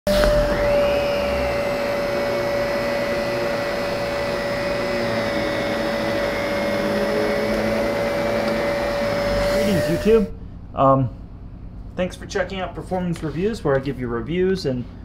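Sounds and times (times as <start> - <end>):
vacuum cleaner on carpet: 0.1 - 10.3.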